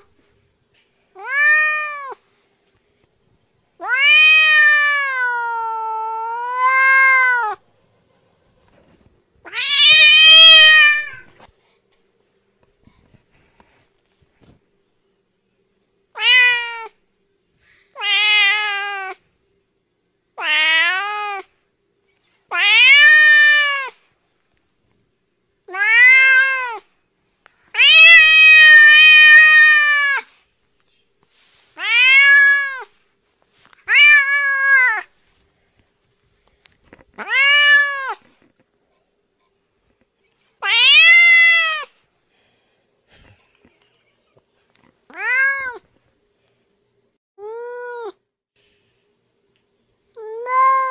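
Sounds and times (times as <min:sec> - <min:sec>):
cat meowing: 0:01.2 - 0:02.2, 0:03.8 - 0:07.6, 0:09.4 - 0:11.3, 0:16.2 - 0:17.0, 0:18.0 - 0:19.2, 0:20.4 - 0:21.5, 0:22.5 - 0:24.0, 0:25.7 - 0:26.9, 0:27.8 - 0:30.3, 0:31.8 - 0:32.9, 0:33.8 - 0:35.1, 0:37.2 - 0:38.3, 0:40.6 - 0:41.9, 0:45.1 - 0:45.8, 0:50.2 - 0:50.9.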